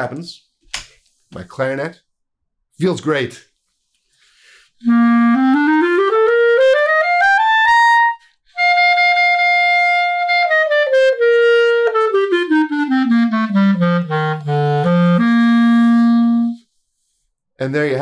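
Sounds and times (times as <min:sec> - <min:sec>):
clarinet playing scales: 0:04.8 - 0:16.7.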